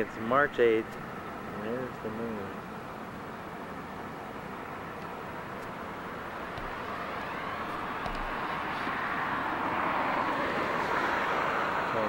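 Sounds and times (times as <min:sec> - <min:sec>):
vehicle approaching: 0:04.6 - 0:12.0.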